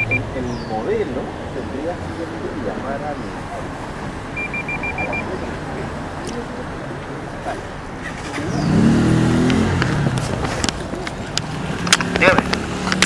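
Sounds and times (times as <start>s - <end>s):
street traffic noise: 0.0s - 13.0s
vehicle engine passing close: 0.0s - 13.0s.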